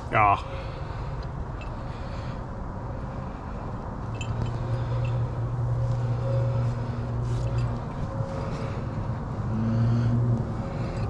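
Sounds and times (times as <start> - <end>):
steady low rumble: 0.0 - 11.0
faint metallic clinks: 4.0 - 8.0.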